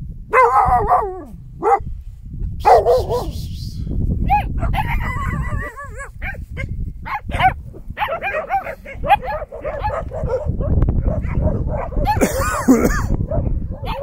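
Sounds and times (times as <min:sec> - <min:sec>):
puppies whining and yipping: 0:04.3 - 0:06.4, 0:13.7 - 0:14.0.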